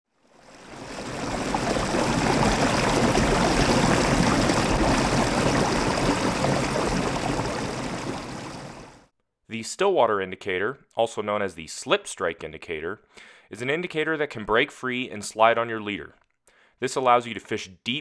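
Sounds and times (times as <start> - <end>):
stream water running over rocks: 0.3 - 9.0.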